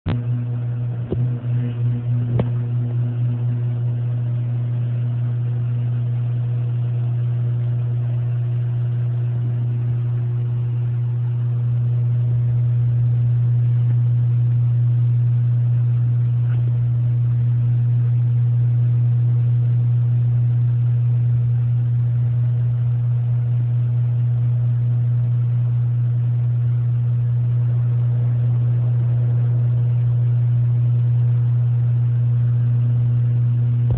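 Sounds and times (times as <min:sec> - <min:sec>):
electric motor humming: 0:00.1 - 0:10.4.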